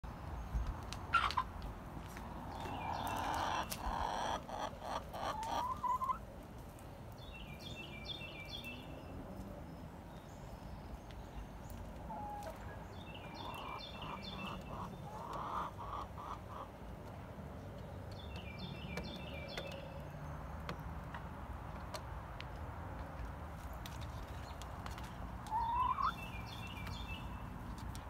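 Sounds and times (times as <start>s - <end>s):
hen clucking: 1.1s - 1.5s, 2.6s - 6.2s, 12.0s - 16.8s, 25.4s - 26.6s.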